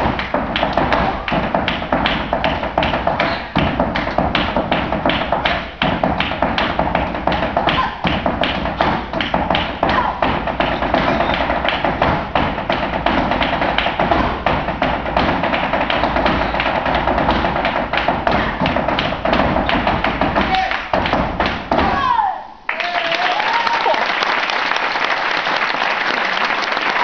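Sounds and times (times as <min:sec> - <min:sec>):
rhythmic hand clapping: 0:00.0 - 0:22.1, 0:22.7 - 0:27.0
dancer's shoes tapping and stamping: 0:00.0 - 0:22.3.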